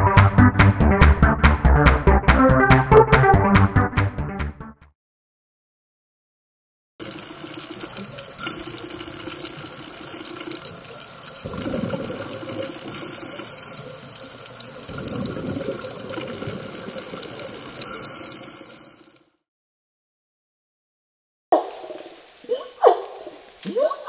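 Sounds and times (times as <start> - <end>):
underwater watery wash: 7.0 - 19.4.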